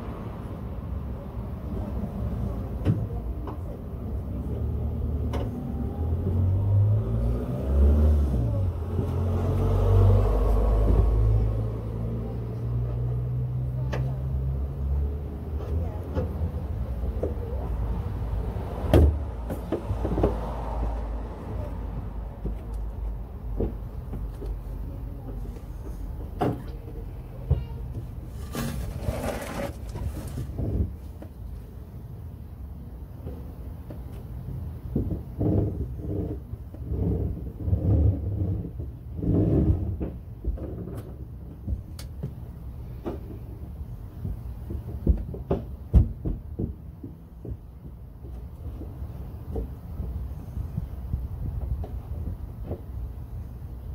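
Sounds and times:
dull thumps and knocks: 44.2 - 50.2.

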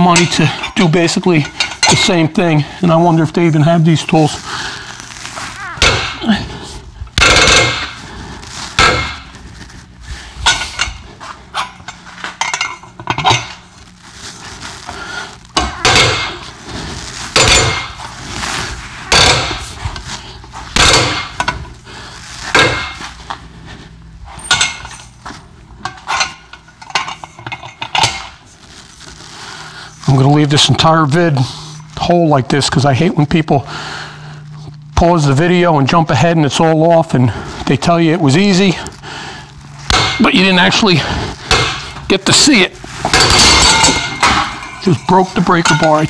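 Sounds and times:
metallic clanks and creaks: 43.0 - 46.0.

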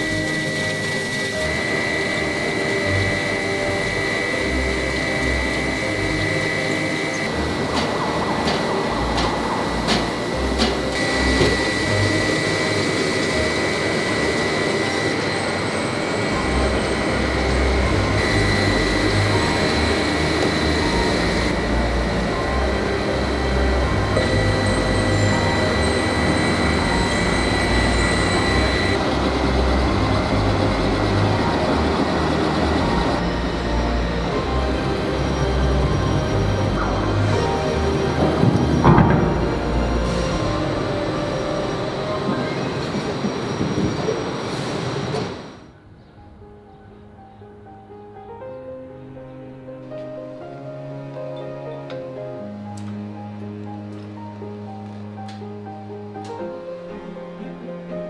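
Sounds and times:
rumbling hiss: 0.0 - 45.8
high machinery whine: 0.0 - 45.9.

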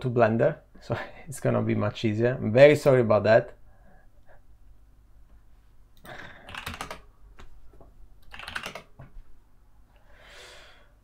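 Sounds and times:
computer keyboard typing: 6.0 - 7.1, 8.2 - 9.0.

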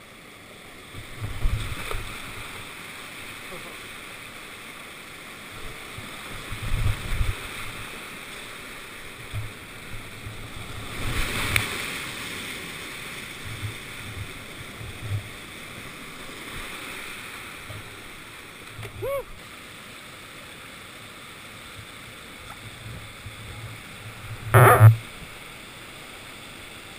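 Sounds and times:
rushing whitewater: 0.0 - 26.9
water splashing: 22.2 - 25.4.

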